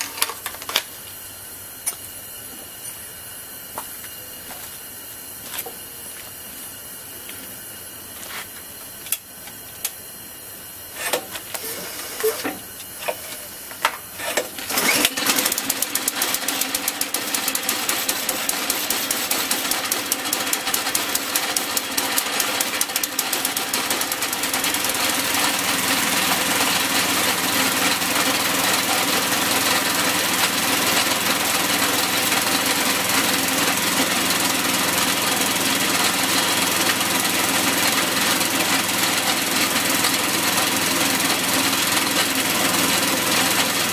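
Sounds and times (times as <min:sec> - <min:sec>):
engine pull-started and running: 0:14.3 - 0:43.9.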